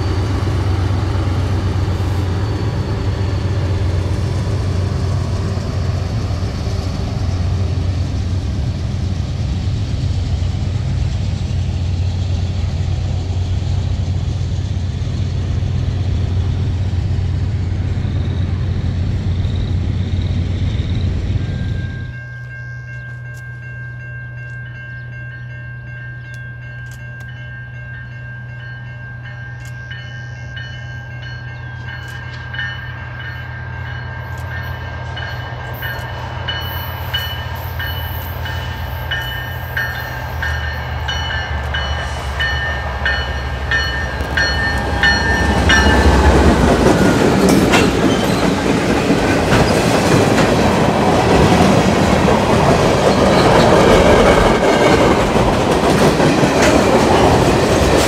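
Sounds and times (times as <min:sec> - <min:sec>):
high-pitched train tones: 0:00.0 - 0:58.0
locomotive engine drone: 0:00.0 - 0:58.0
train wheels on rails: 0:00.0 - 0:58.0.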